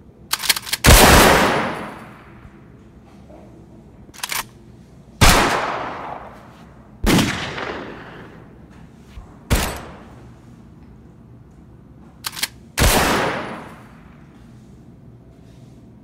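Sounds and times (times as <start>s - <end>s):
gunshots with echo: 0.8s - 2.2s, 5.2s - 6.4s, 7.0s - 8.6s, 12.8s - 14.0s.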